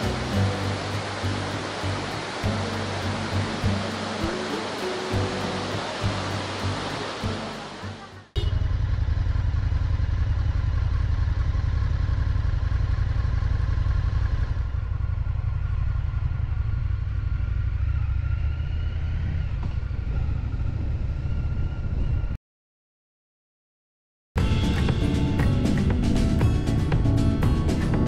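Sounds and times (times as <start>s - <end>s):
background music: 0.0s - 8.3s, 24.4s - 28.0s
motorcycle engine running: 8.4s - 21.8s.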